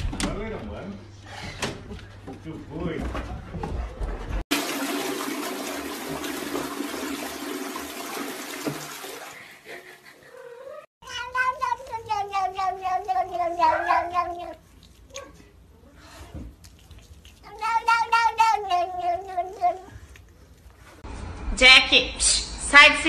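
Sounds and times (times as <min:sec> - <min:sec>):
toilet flushing: 0:04.5 - 0:10.1
cat meowing: 0:10.4 - 0:15.3, 0:17.4 - 0:19.9.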